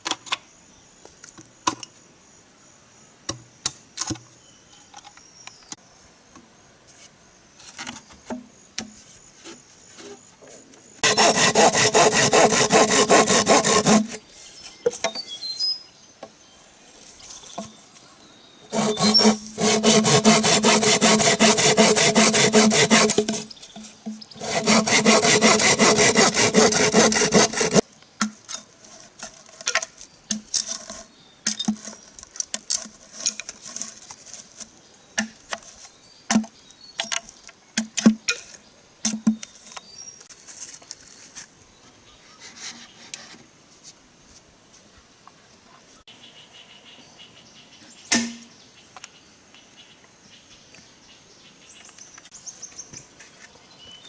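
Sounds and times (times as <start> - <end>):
saw cutting through bamboo: 11.0 - 14.2, 18.7 - 23.5, 24.4 - 27.8.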